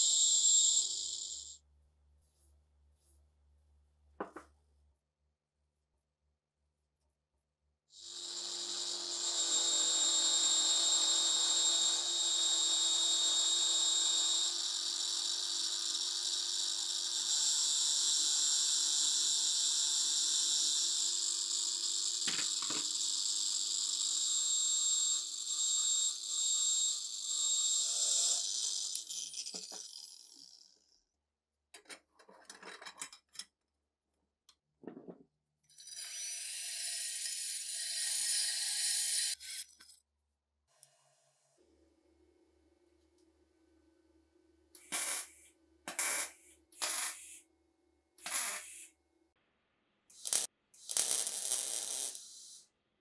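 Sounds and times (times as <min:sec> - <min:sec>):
angle grinder grinding metal: 0:00.0 - 0:01.6, 0:08.1 - 0:13.4, 0:20.6 - 0:30.8, 0:35.8 - 0:39.9
cordless drill with brush in bore: 0:00.0 - 0:01.6, 0:08.0 - 0:30.7, 0:35.8 - 0:39.8, 0:52.1 - 0:52.6.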